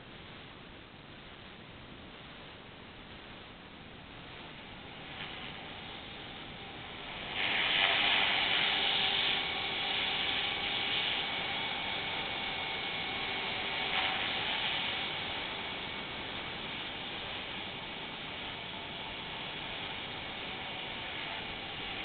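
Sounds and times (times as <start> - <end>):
rc helicopter flying overhead: 4.8 - 22.0.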